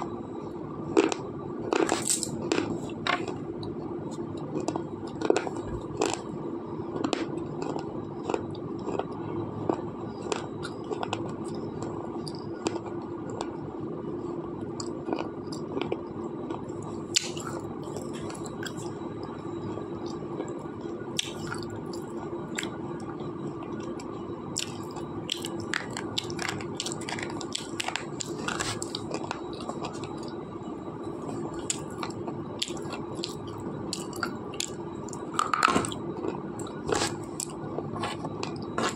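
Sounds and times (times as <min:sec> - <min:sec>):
pencil being bitten and chewed: 0:36.7 - 0:38.9.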